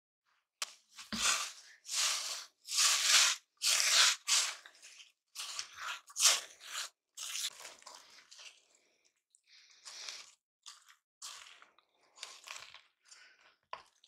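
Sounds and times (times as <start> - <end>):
spoon stirring crunchy mixture: 0.6 - 14.0.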